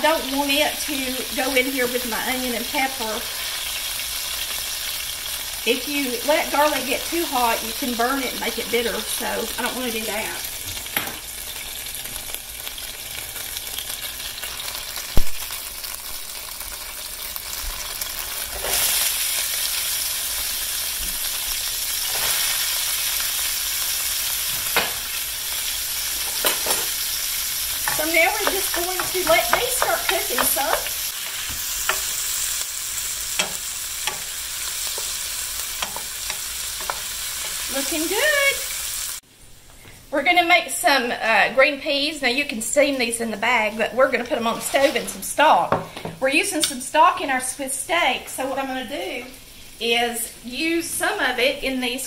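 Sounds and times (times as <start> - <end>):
vegetables sizzling in hot fat: 0.0 - 39.6, 40.2 - 52.0
wooden spoon scraping pan: 27.8 - 32.3, 44.3 - 45.3.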